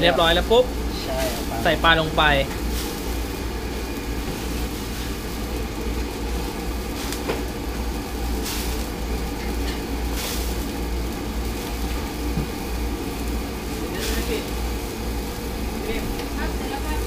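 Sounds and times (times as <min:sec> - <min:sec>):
gas burner roaring: 0:00.0 - 0:17.0
water boiling in a wok: 0:00.0 - 0:17.0.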